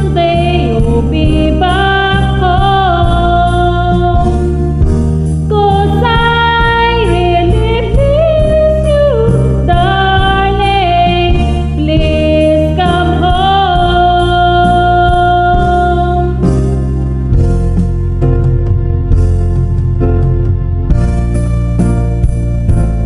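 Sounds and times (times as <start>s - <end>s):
woman singing: 0.0s - 4.8s, 5.5s - 16.5s
karaoke backing track: 0.0s - 23.0s.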